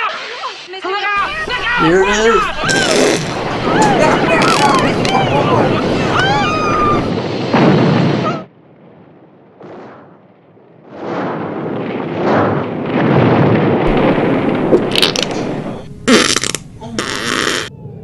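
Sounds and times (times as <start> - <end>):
loud blast: 1.2 - 17.7
rush of burning gasoline: 1.3 - 8.3, 10.8 - 17.7
explosion: 1.4 - 17.7.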